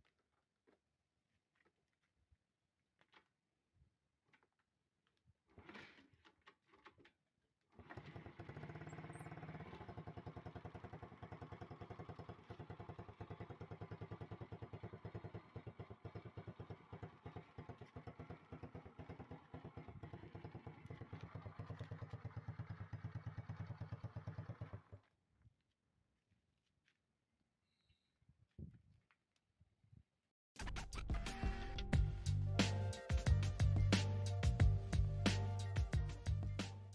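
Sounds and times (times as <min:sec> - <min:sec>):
motorcycle engine idling: 0:08.0 - 0:25.0.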